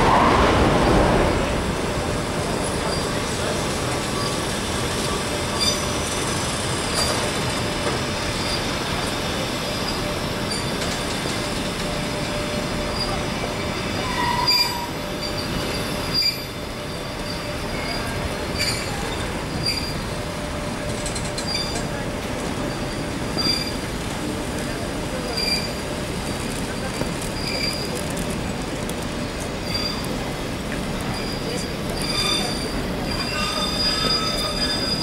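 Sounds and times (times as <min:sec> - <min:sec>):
train wheels rumbling on rail: 0:00.0 - 0:35.0
high-pitched wheel squeals: 0:13.9 - 0:20.0, 0:22.7 - 0:23.8, 0:31.1 - 0:35.0.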